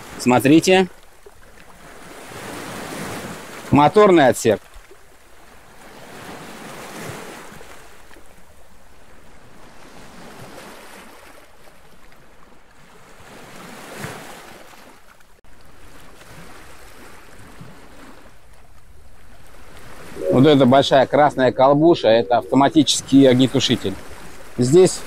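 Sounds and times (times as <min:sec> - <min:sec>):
sea water washing against hulls: 0:00.0 - 0:25.0
wind on microphone: 0:18.9 - 0:25.0.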